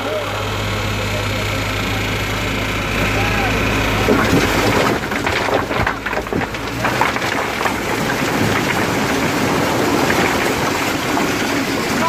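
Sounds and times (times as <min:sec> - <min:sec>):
rocks and gravel tumbling: 0:03.0 - 0:12.0
rocks knocking together: 0:03.9 - 0:12.0.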